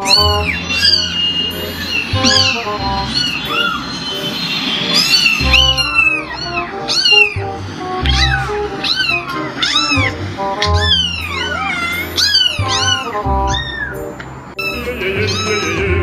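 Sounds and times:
kitten meowing: 0:00.0 - 0:01.2, 0:05.0 - 0:14.0
background music with bass beat: 0:00.0 - 0:03.4, 0:05.3 - 0:14.1.

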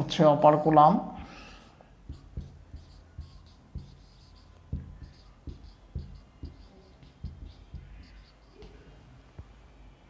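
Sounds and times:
soft knocks of pen strokes: 0:01.8 - 0:09.6
marker squeaking on whiteboard: 0:02.0 - 0:09.6.

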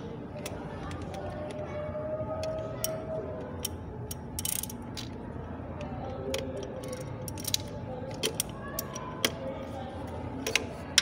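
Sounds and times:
ratchet wrench clicking: 0:03.6 - 0:05.1.

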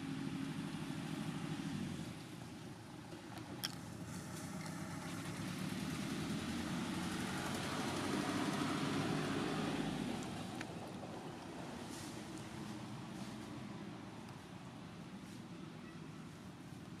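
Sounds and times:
engine humming: 0:00.0 - 0:17.0.

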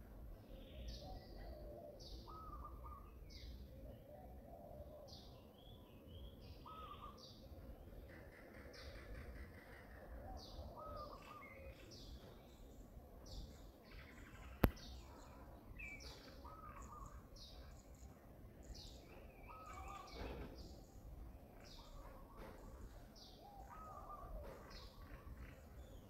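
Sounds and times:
lower warbled bird calls: 0:00.5 - 0:12.3, 0:13.4 - 0:26.0
sharp click: 0:14.6 - 0:14.8.

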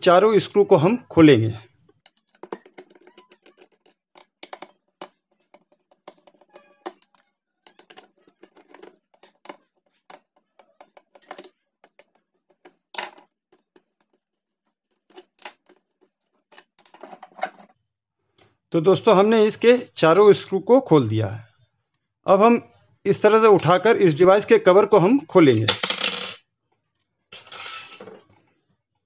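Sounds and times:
screwdriver clicking and scraping: 0:01.8 - 0:17.7.

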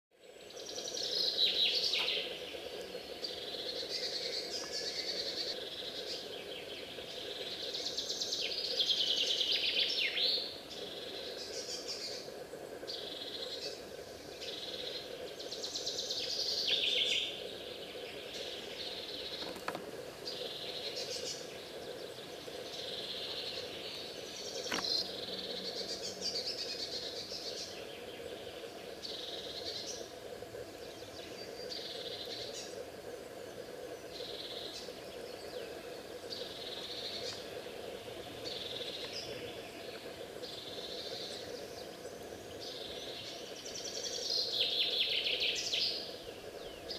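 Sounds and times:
songbirds singing: 0:00.1 - 0:46.9.

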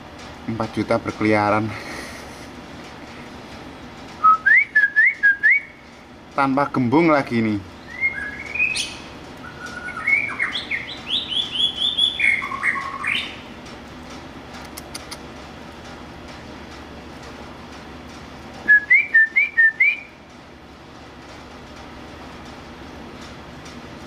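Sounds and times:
songbird whistling: 0:04.2 - 0:05.8, 0:07.8 - 0:13.4, 0:18.7 - 0:20.2.

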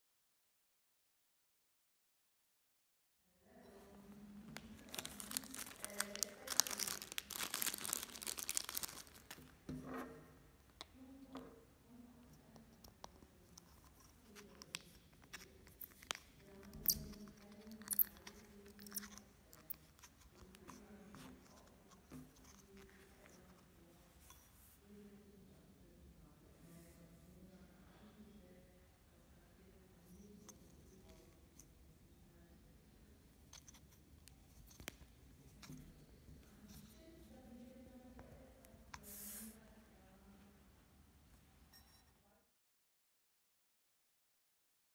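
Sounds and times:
plastic bag crinkling: 0:04.6 - 0:09.6.

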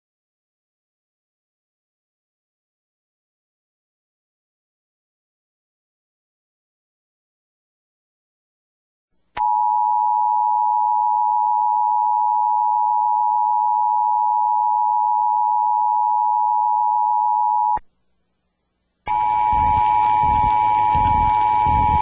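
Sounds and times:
radio static: 0:19.1 - 0:22.0
two-tone alert signal: 0:19.1 - 0:22.0.

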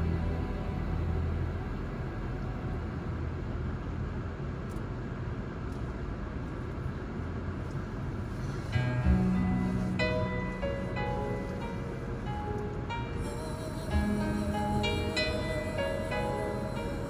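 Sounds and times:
car road noise rumble: 0:00.0 - 0:17.0.

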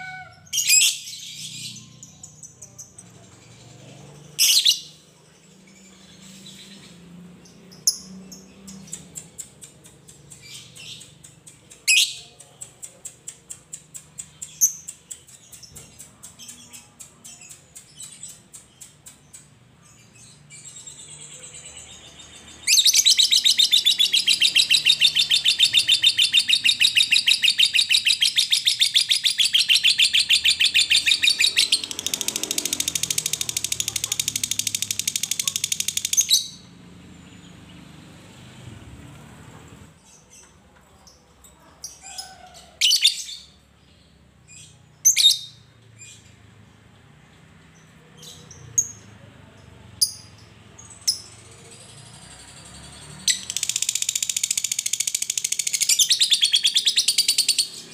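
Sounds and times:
lovebird ticking chirps: 0:22.9 - 0:36.6.

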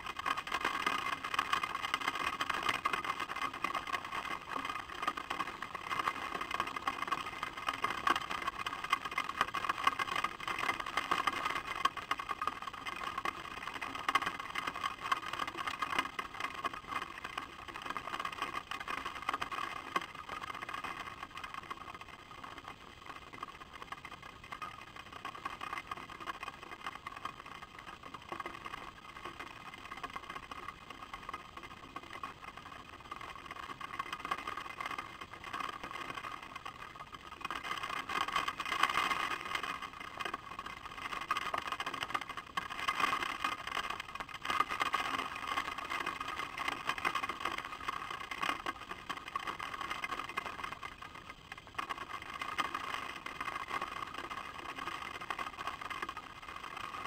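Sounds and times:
raindrops ticking on camera: 0:00.0 - 0:57.0.

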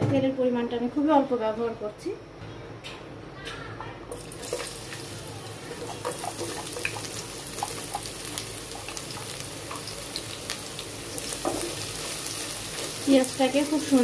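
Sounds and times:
oil popping and crackling: 0:04.1 - 0:14.0
onions sizzling in hot oil: 0:04.1 - 0:14.0.

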